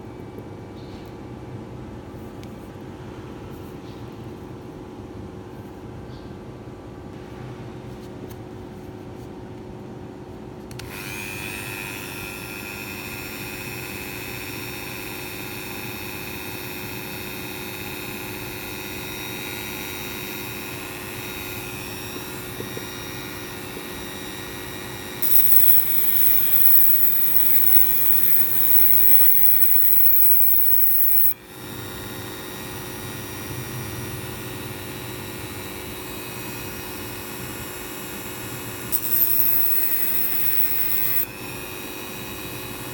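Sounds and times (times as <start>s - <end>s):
rotary tool whine: 10.7s - 42.9s
metal grinding on spinning disc: 25.0s - 31.4s, 38.9s - 41.6s.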